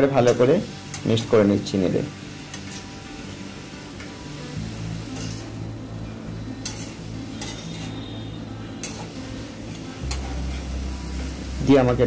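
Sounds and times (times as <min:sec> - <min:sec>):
vegetables sizzling in oil: 0:00.0 - 0:12.0
spatula scraping the pan: 0:02.4 - 0:03.2, 0:05.0 - 0:05.6, 0:06.5 - 0:11.4.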